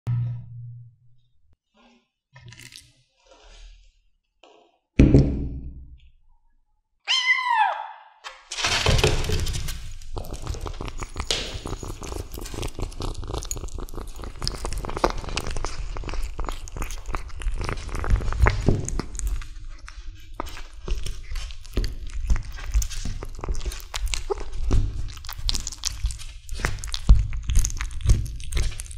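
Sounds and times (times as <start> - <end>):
thump: 5.0 - 5.8
kitten mewing: 7.1 - 8.0
kitten chewing raw chicken: 10.0 - 28.9.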